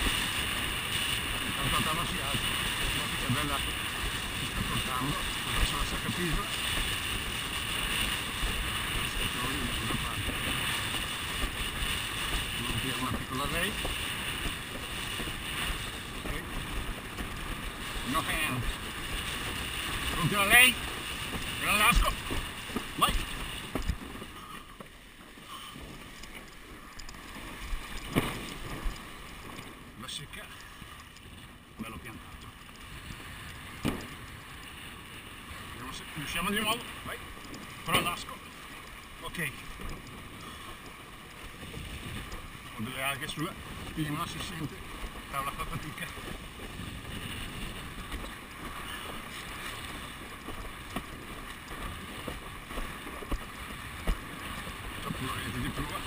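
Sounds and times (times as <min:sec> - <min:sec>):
rush of water and wind: 0:00.0 - 0:56.0
board knocking against waves: 0:19.5 - 0:24.9, 0:27.9 - 0:29.0, 0:33.8 - 0:34.2, 0:50.5 - 0:55.0.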